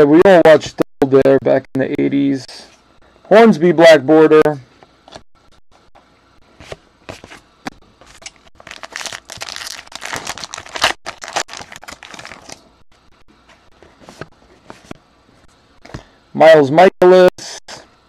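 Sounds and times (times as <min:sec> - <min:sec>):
wrapper crinkling and tearing: 0:08.1 - 0:12.6.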